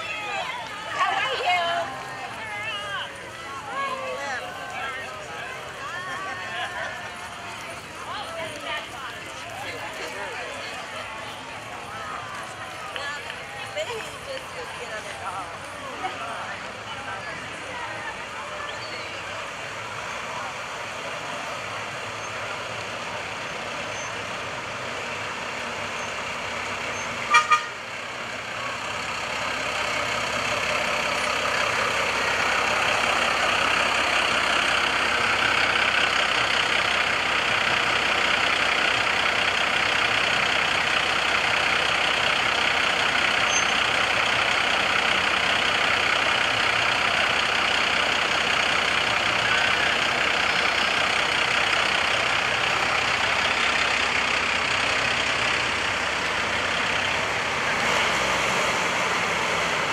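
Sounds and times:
military vehicles driving past: 0:00.0 - 0:59.9
short horn toots: 0:27.2 - 0:27.8.

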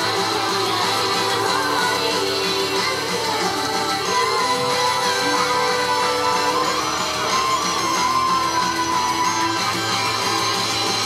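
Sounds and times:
pop song through stage speakers: 0:00.0 - 0:11.0.

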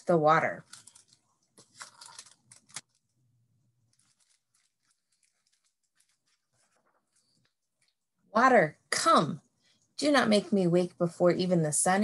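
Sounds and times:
book rustling: 0:00.6 - 0:03.2, 0:03.8 - 0:08.0.

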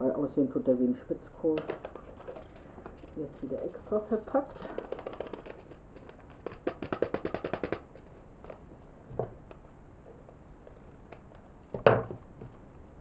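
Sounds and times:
paper packet crackling: 0:01.6 - 0:08.7.

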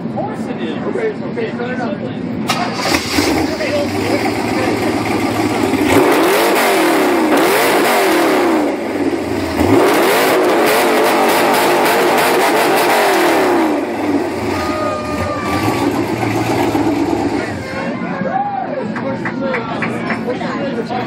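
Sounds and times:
car engine revving: 0:02.4 - 0:17.8.

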